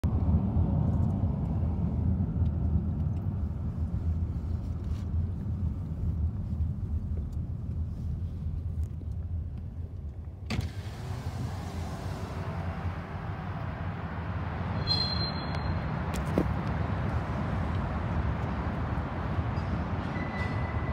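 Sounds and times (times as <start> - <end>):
car tyres and engine rumble: 0.0 - 20.9
wind and road hiss: 0.8 - 20.9
brief high squeal: 14.7 - 16.0, 19.6 - 20.9.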